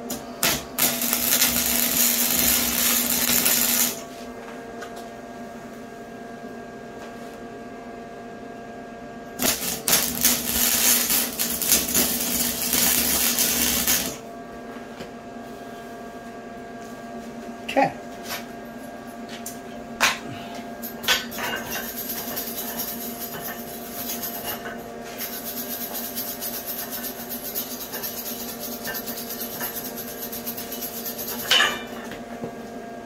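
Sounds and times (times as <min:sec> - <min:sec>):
electrical hum: 0:00.0 - 0:25.8
welder arc crackling: 0:00.1 - 0:04.0, 0:09.4 - 0:14.2.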